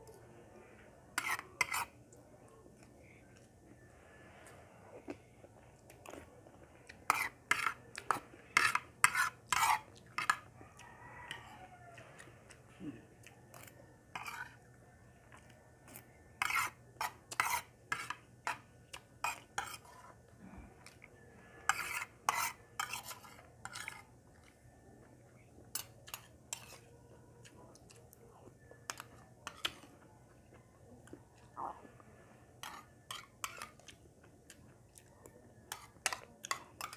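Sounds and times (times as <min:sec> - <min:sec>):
metal spoon scraping ceramic plate: 0:01.2 - 0:01.9, 0:07.1 - 0:10.4, 0:13.5 - 0:14.6, 0:16.4 - 0:18.6, 0:19.2 - 0:20.1, 0:21.7 - 0:24.1.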